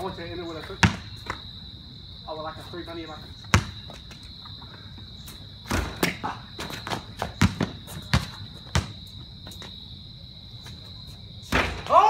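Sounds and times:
insects droning: 0.0 - 12.0
basketball bouncing on concrete: 0.6 - 1.4, 3.4 - 4.2, 5.6 - 9.7.

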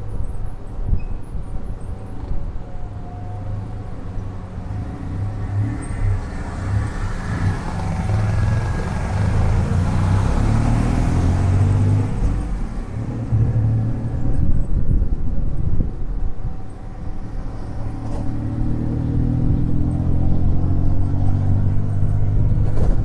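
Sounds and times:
auto rickshaw engine running: 3.6 - 20.4.

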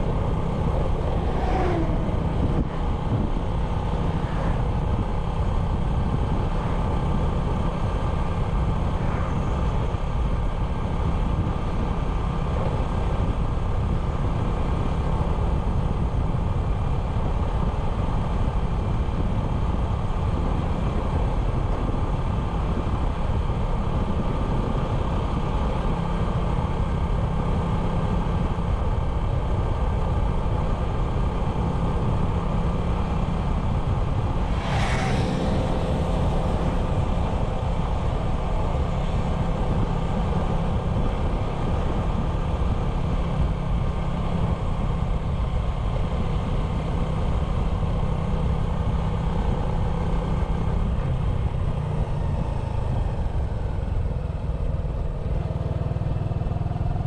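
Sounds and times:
low rumble: 0.0 - 12.2, 33.2 - 41.8.

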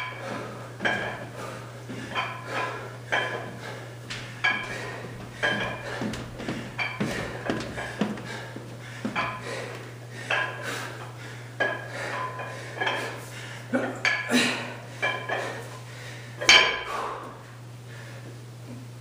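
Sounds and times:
weight plates clinking: 0.8 - 1.3, 2.1 - 3.5, 4.3 - 8.2, 9.1 - 9.4, 16.4 - 16.9.

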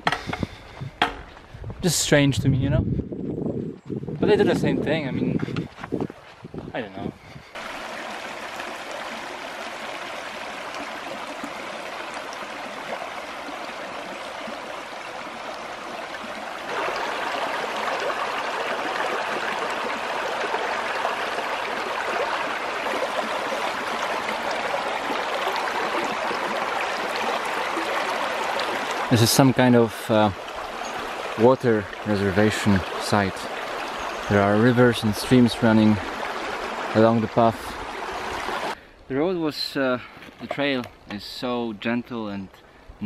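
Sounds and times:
stream running over stones: 7.4 - 41.6.

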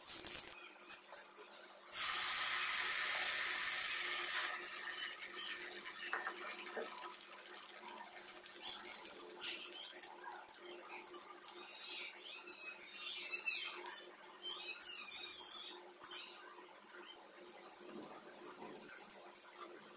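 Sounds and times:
hot griddle sizzling: 0.0 - 0.6, 1.9 - 19.9.

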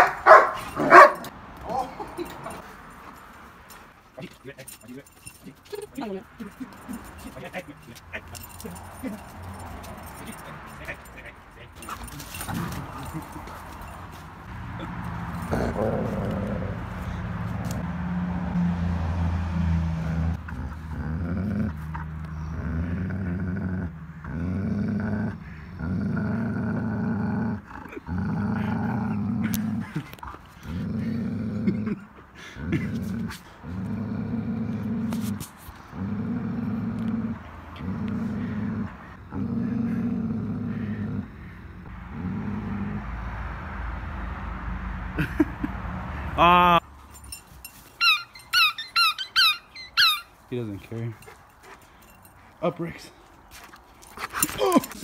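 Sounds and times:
dog growling: 14.8 - 17.2, 20.4 - 43.1.

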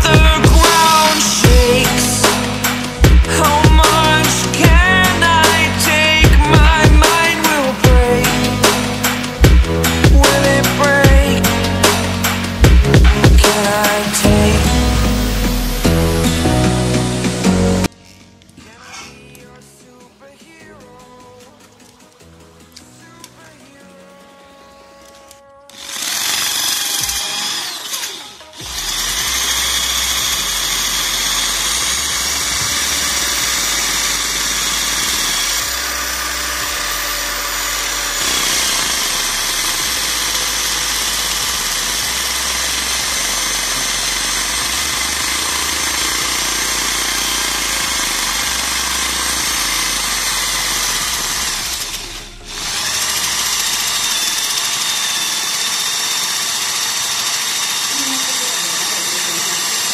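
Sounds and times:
electric drill running: 0.0 - 19.2, 23.4 - 59.9
sandpaper sanding tyre rim: 25.8 - 59.9.

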